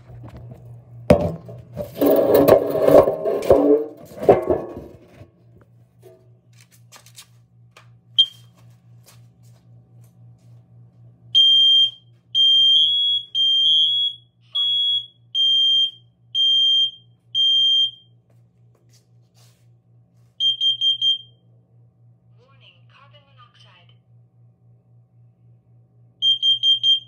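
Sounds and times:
alarm long high beeps: 20.4s - 21.3s.

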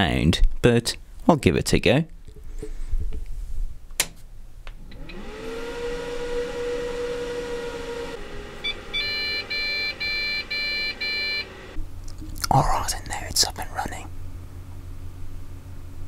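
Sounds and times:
computer fans humming: 4.9s - 15.0s
short electronic beeps: 8.6s - 11.5s.

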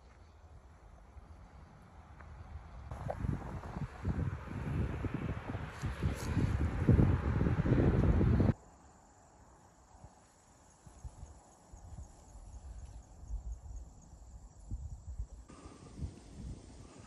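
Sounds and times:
insect chirps: 0.0s - 3.1s, 8.5s - 17.0s
wind rumbling on microphone: 2.5s - 8.6s, 10.7s - 17.0s
insects trilling: 8.5s - 16.0s.

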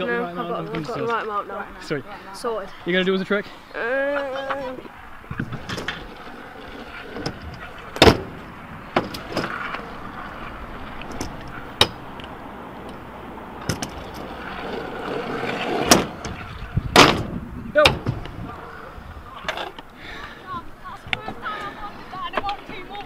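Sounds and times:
scooter wheels rolling on tarmac: 0.0s - 23.0s
scooter landing clacks: 5.3s - 10.1s.

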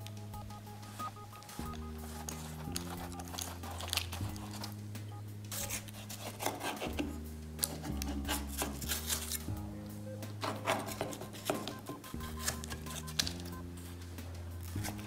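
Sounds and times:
background music low chords: 0.0s - 15.0s
knife cutting through pastry: 5.5s - 9.5s.

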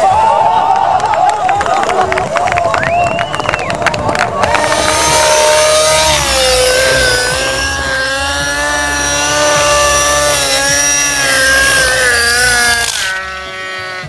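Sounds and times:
rc helicopter engine whine: 4.4s - 14.0s.

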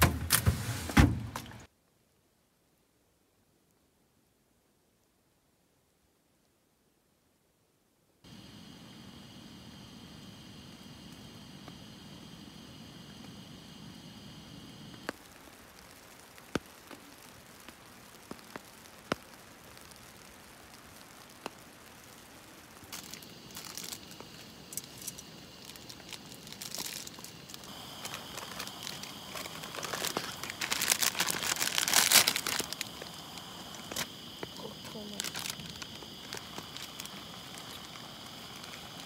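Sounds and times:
plastic wrapper crinkling and tearing: 22.8s - 34.1s, 35.0s - 39.0s.

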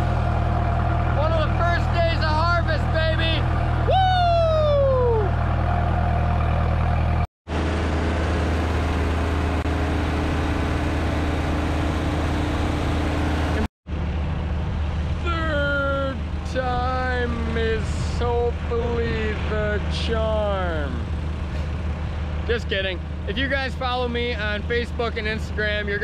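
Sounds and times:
engine droning: 0.0s - 26.0s
man yelling: 1.2s - 5.3s, 15.2s - 21.0s.

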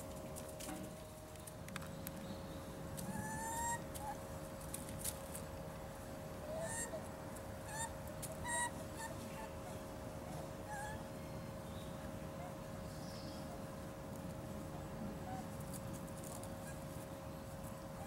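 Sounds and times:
faint hum: 0.0s - 18.0s
dogs giving squeaky calls: 3.1s - 4.2s, 7.7s - 9.2s, 10.7s - 11.0s.

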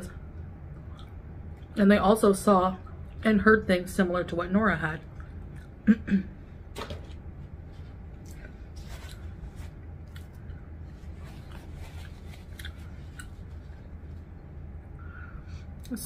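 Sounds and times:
low steady hum: 0.0s - 16.0s
crunchy eating: 8.2s - 14.2s
paper napkin rustling: 8.7s - 9.8s, 10.8s - 14.3s.

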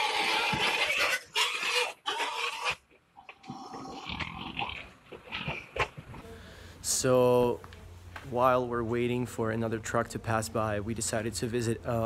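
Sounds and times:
pigs squealing: 0.0s - 6.2s.

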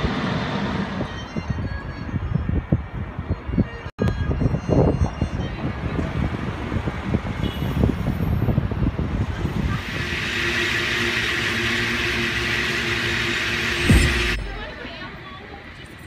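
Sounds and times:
vehicle rumbling with knocks: 11.6s - 15.2s.

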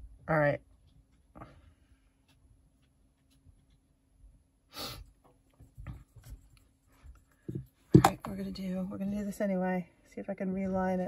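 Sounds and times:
soft thump: 7.5s - 8.3s.

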